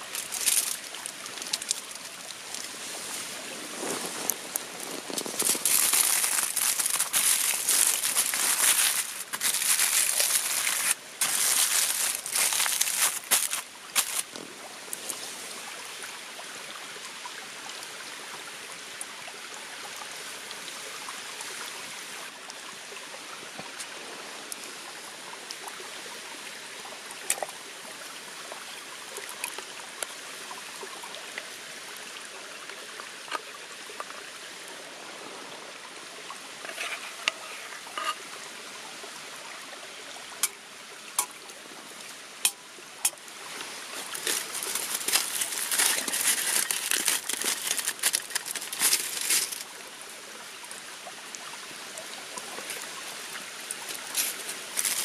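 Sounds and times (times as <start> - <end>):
campfire crackling: 0.0 - 14.4, 43.1 - 49.7
stream running: 0.0 - 55.0.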